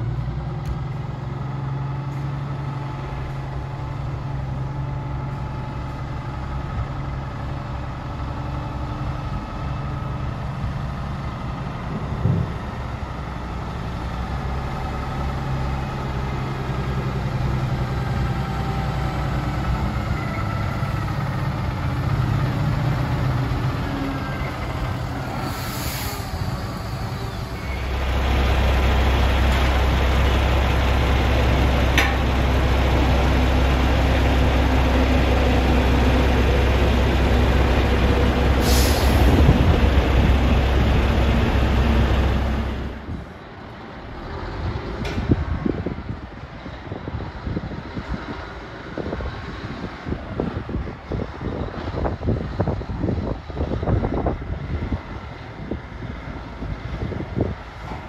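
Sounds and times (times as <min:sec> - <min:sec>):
truck diesel engines droning: 0:00.0 - 0:58.0
air brake hiss: 0:25.4 - 0:26.8, 0:38.6 - 0:39.4.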